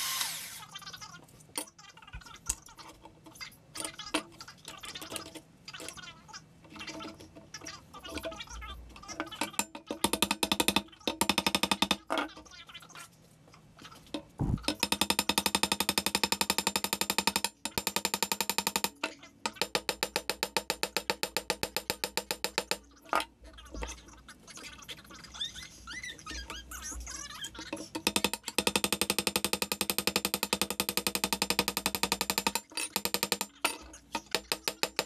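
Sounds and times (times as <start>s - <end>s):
rapid mechanical clicking: 28.0s - 33.6s.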